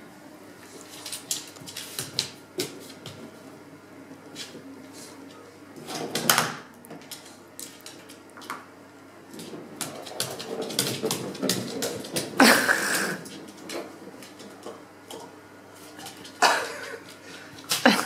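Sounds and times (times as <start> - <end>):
dog claws clicking on wooden floor: 1.0 - 3.2, 6.2 - 8.6, 9.8 - 12.3.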